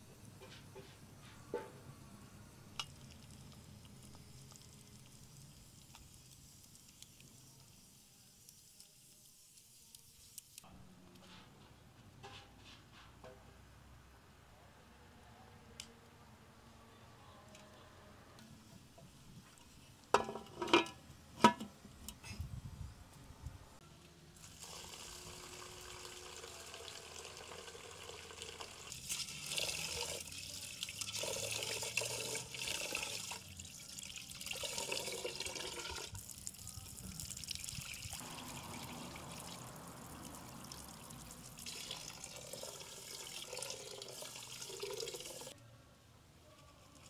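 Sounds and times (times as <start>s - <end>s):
water running into metal pot: 24.4s - 36.6s, 37.2s - 45.5s.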